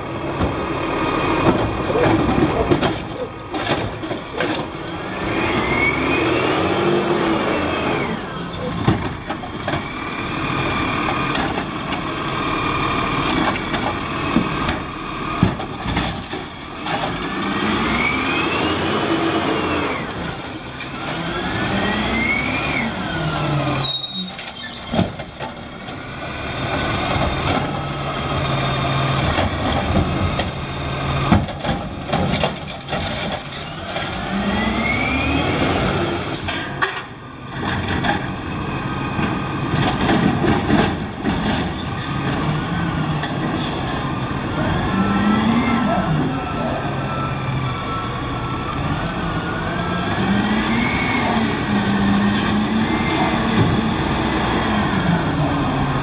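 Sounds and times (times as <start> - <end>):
truck engine revving: 4.6 - 8.4, 16.8 - 23.8, 33.7 - 36.4, 41.9 - 56.0.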